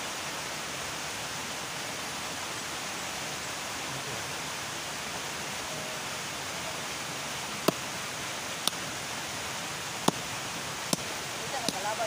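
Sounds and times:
steady hiss: 0.0s - 12.0s
machete chopping earth: 7.6s - 7.9s, 10.0s - 10.2s, 10.9s - 12.0s.

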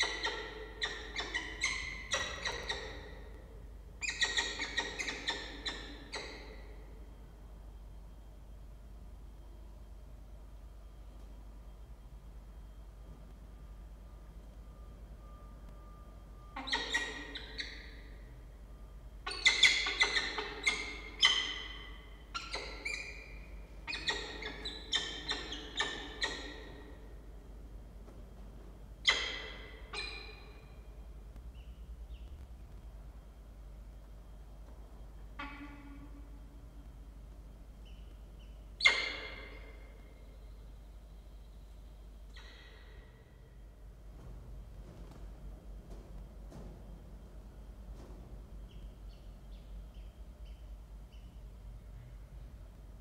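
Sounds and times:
falcons calling: 0.0s - 3.4s, 19.3s - 27.3s, 29.0s - 30.9s.

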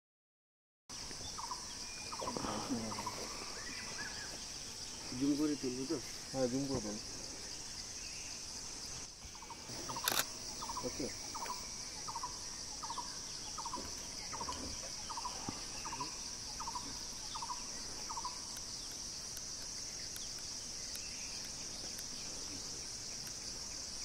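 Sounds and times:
high-pitched insect drone: 0.9s - 24.0s.

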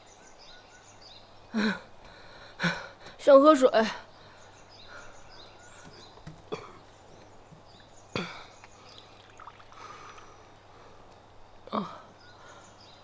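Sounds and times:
water trickling into a cup: 8.9s - 10.2s.

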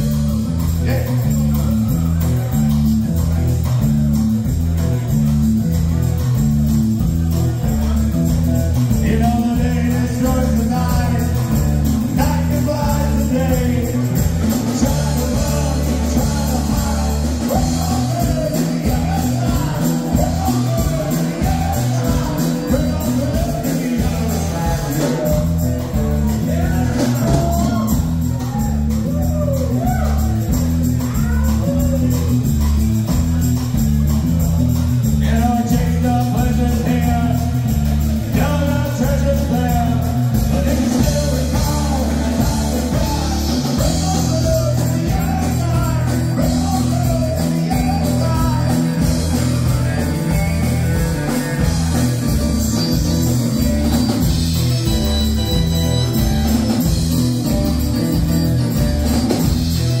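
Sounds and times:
bass line: 0.0s - 60.0s
guitar: 0.0s - 60.0s
person singing: 7.7s - 33.2s, 35.1s - 55.6s.

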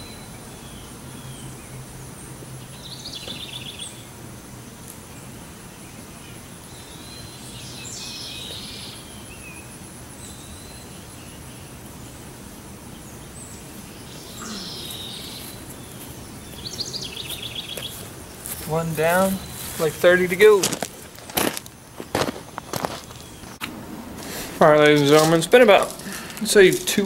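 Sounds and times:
small birds chirping: 0.0s - 23.6s
steady background noise: 0.0s - 27.0s
bird trill: 13.9s - 18.0s.

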